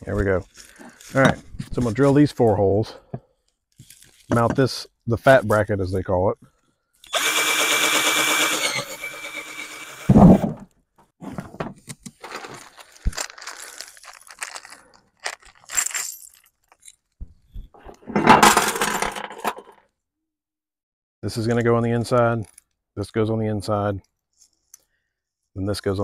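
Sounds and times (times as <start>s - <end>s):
cordless drill boring: 7.0s - 10.2s
metallic rattle of nuts and bolts: 18.2s - 19.7s.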